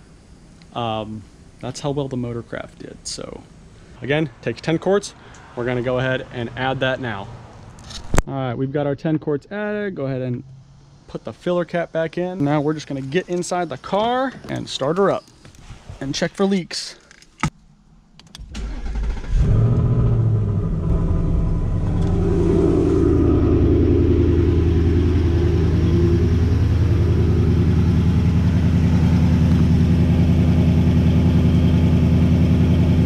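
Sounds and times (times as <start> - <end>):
car engine starting and idling: 18.3 - 33.0.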